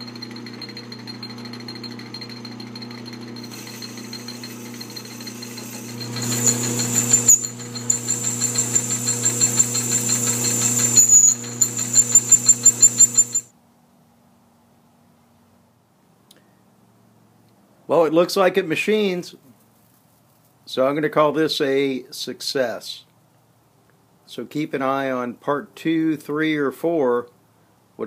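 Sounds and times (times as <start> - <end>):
high whine of machining: 0.0 - 13.5
metal lathe running with rattle: 0.0 - 13.5.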